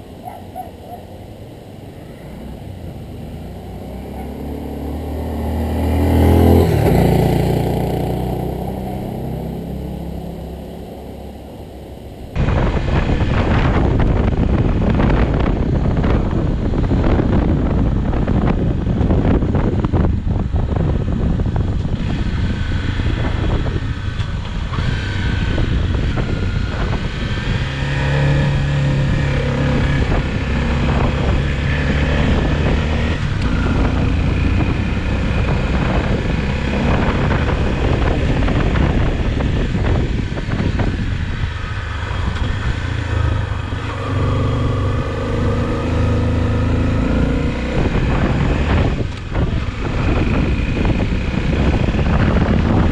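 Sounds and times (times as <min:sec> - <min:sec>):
wind rumble on microphone: 0:00.0 - 0:52.9
motorcycle engine running: 0:12.4 - 0:52.9.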